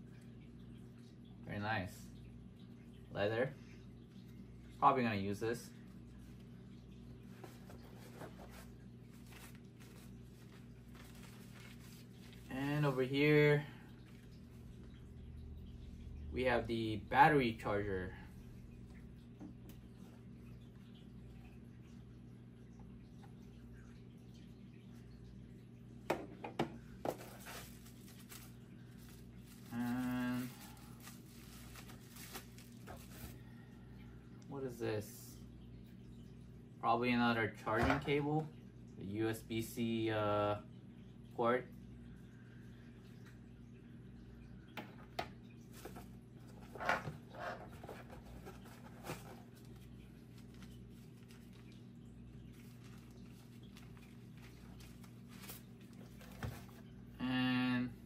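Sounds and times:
steady low hum: 0.0s - 37.6s
packaging rustling: 7.4s - 12.5s, 27.2s - 33.4s
plastic wrapping crinkling: 7.4s - 13.0s, 27.2s - 33.4s.

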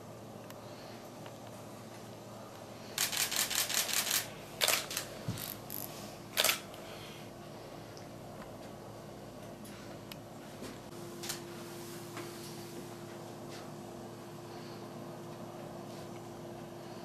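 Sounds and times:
camera shutter clicking: 3.0s - 5.1s, 6.4s - 6.6s.

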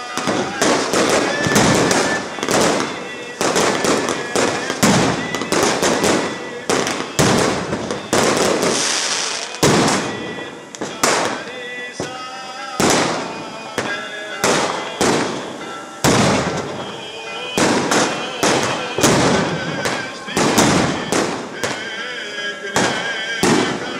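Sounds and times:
fireworks and firecrackers banging: 0.0s - 23.9s.

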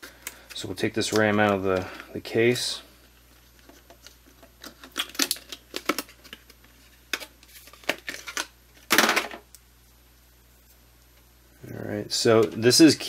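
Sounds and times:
plastic packaging crackling: 3.4s - 9.1s.

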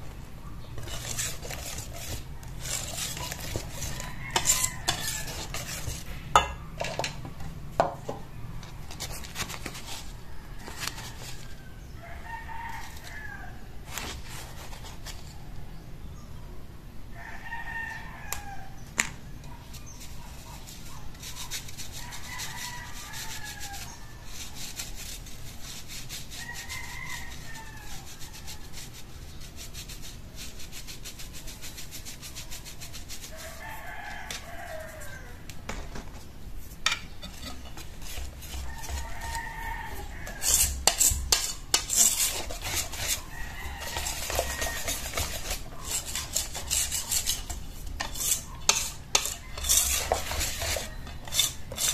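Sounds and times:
mesh sieve rasping and tapping: 0.8s - 11.6s, 19.7s - 51.9s
rooster crowing: 2.0s - 6.1s, 10.0s - 13.8s, 17.1s - 18.8s, 21.9s - 24.5s, 26.3s - 28.9s, 33.2s - 35.6s, 37.2s - 47.3s, 48.2s - 51.9s.

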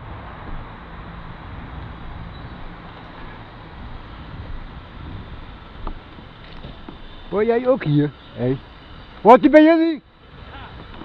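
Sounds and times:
moped engine idling: 2.4s - 11.0s.

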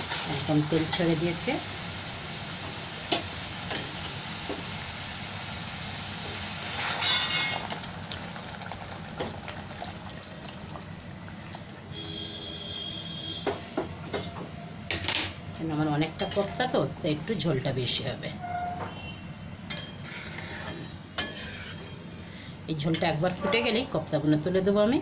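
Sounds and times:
water sizzling in hot oil: 0.0s - 12.3s
metal spatula scraping pan: 6.7s - 7.6s, 19.9s - 22.0s.

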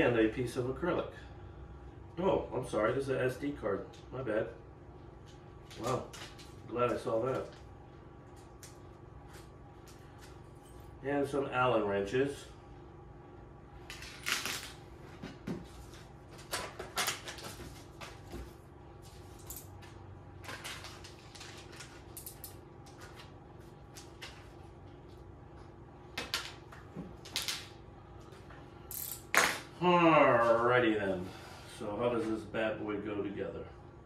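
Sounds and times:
packaging rustling: 15.8s - 18.3s, 20.4s - 22.2s.

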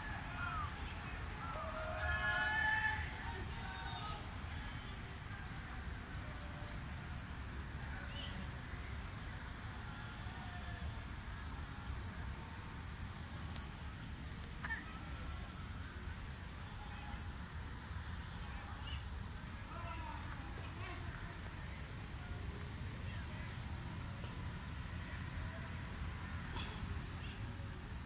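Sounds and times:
insects chirring in trills: 0.0s - 28.0s.

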